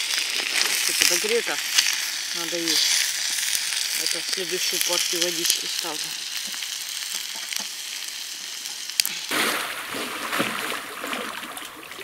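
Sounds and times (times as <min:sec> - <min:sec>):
camp stove hissing and crackling: 0:00.0 - 0:09.4
water splashing around swimmer: 0:09.3 - 0:12.0.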